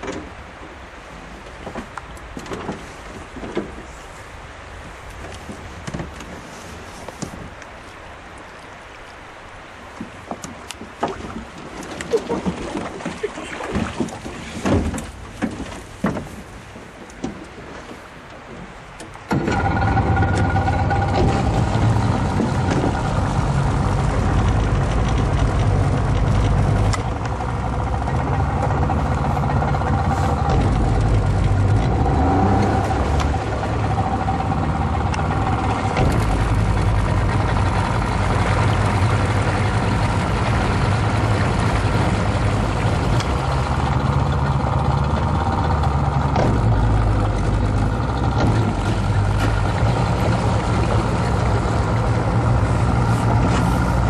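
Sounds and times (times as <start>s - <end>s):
boat motor running: 17.1s - 54.0s.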